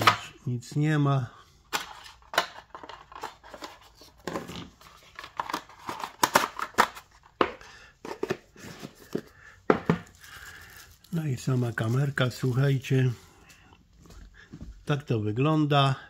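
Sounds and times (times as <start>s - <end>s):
packaging rustling and crinkling: 1.8s - 7.4s, 8.1s - 13.5s.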